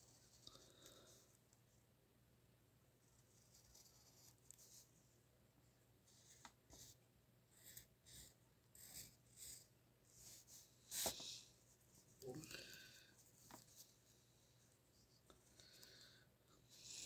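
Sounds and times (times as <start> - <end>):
pencil scratching on paper: 6.1 - 11.2.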